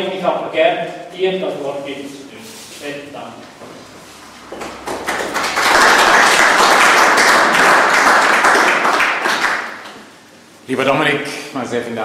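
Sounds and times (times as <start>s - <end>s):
audience applauding: 4.4s - 10.1s.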